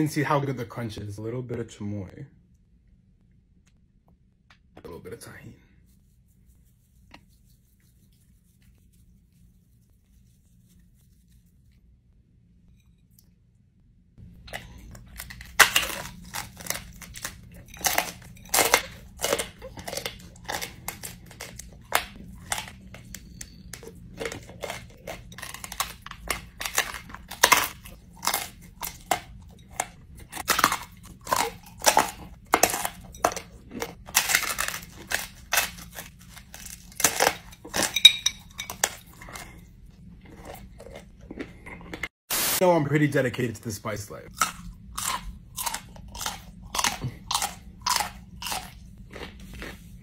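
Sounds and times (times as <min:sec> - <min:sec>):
frozen snack crunching: 0:14.4 - 0:42.0, 0:44.3 - 0:50.0.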